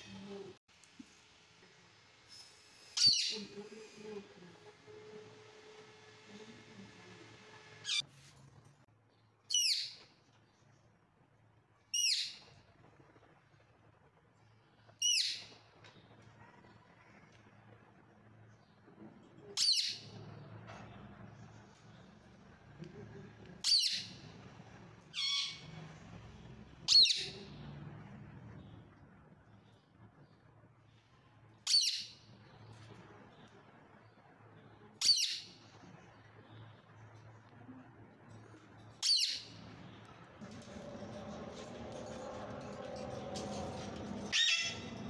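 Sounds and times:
steady low hum: 39.6s - 45.0s
parakeet squawking: 44.3s - 44.9s.

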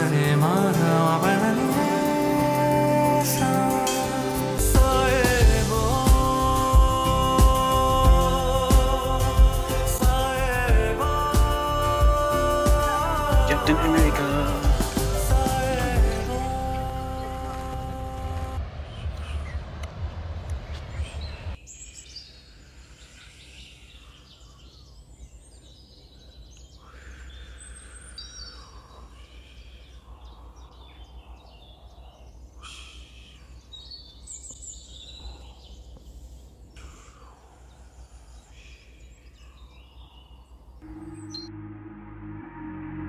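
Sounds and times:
high chirps and calls: 36.7s - 41.7s.

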